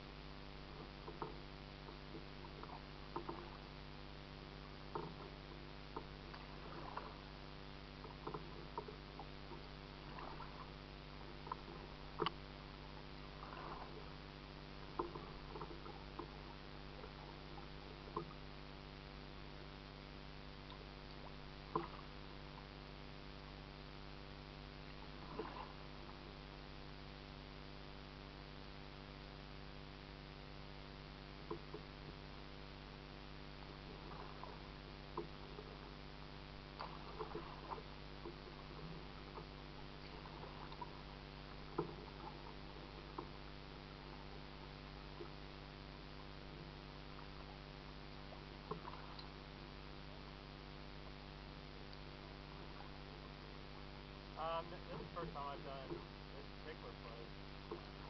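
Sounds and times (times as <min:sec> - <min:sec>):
steady low hum: 0:00.0 - 0:58.0
paddle splashing water: 0:00.5 - 0:27.8, 0:30.6 - 0:58.0
paddle knocking against kayak: 0:00.8 - 0:03.6, 0:04.9 - 0:07.2, 0:08.0 - 0:10.7, 0:14.8 - 0:17.5.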